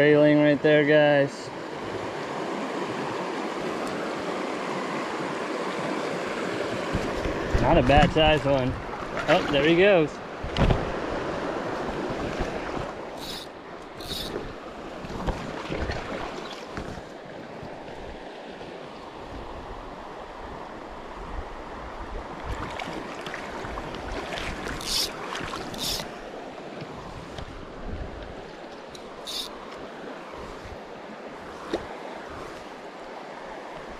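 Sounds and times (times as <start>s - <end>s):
stream running over stones: 2.1s - 17.1s, 22.6s - 27.3s, 28.5s - 30.3s
high hissing swishes: 13.2s - 14.4s, 24.8s - 26.1s, 29.2s - 29.6s.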